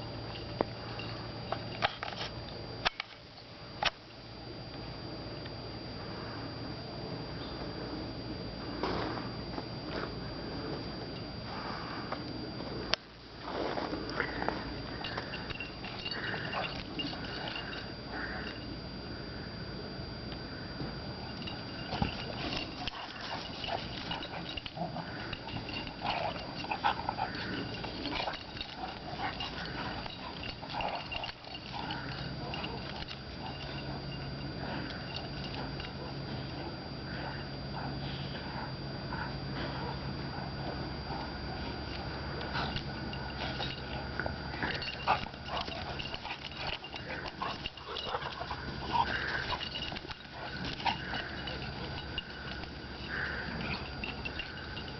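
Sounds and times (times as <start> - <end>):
dogs play-fighting vocal noises: 14.2 - 18.6, 21.2 - 54.9.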